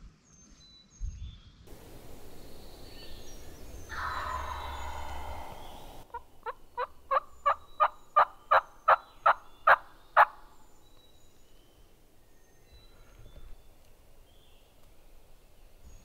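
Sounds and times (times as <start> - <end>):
turkey yelping: 3.9 - 10.4.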